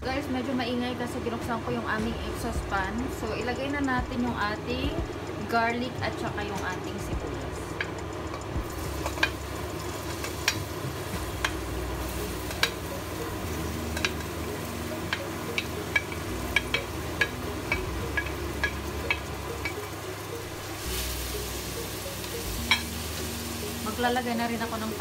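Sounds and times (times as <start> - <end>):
kitchen exhaust fan: 0.0 - 25.0
sharp ticks and pops: 2.0 - 20.4
onions sizzling in hot oil: 2.2 - 25.0.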